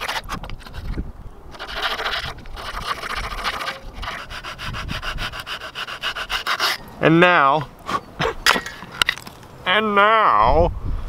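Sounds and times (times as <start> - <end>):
hand saw cutting bark: 0.0 - 6.9.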